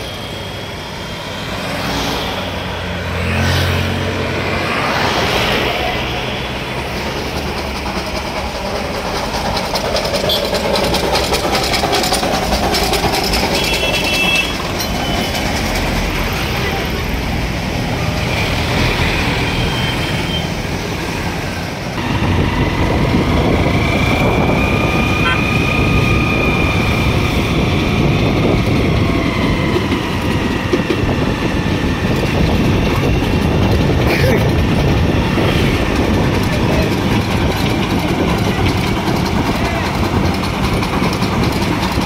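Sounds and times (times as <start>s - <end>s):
road traffic noise: 0.0s - 42.0s
steady high tone: 22.0s - 27.6s.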